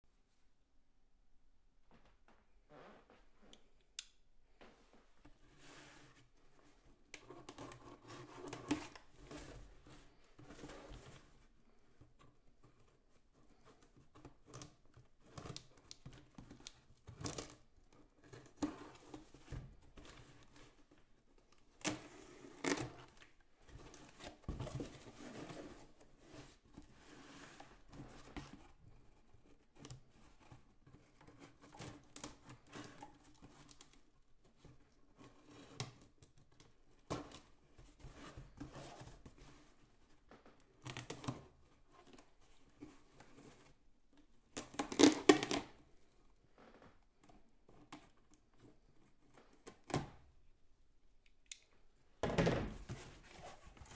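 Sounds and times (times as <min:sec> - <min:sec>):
tape tearing: 0:44.6 - 0:45.7
cardboard rustling: 0:52.7 - 0:53.9.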